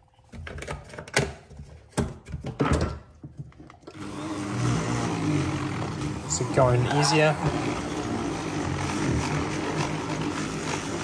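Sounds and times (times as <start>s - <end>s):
hand blender motor blending: 3.9s - 11.0s.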